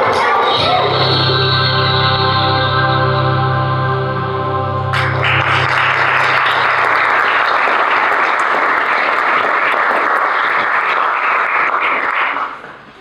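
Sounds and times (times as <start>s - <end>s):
held music chord: 0.6s - 7.6s
audience applauding: 4.9s - 13.0s.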